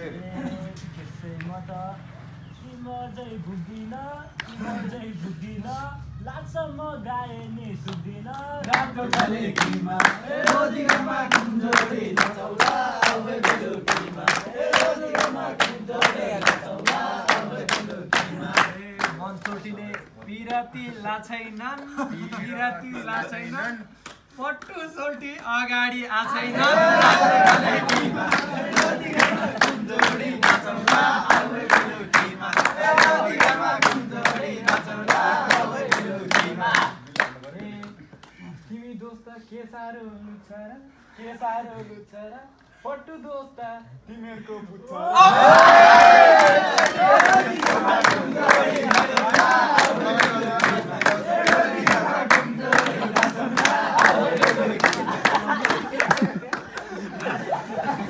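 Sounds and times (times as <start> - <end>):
men singing folk song: 7.0 - 23.7, 26.3 - 37.9, 45.4 - 56.3
hands clapping steady beat: 7.8 - 20.7, 23.6 - 25.6, 26.6 - 38.4, 45.4 - 58.0.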